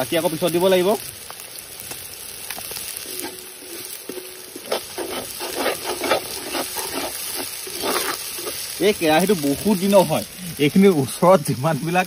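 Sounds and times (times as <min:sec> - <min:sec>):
onions sizzling in hot oil: 0:00.0 - 0:12.0
spatula scraping and stirring: 0:02.9 - 0:09.6.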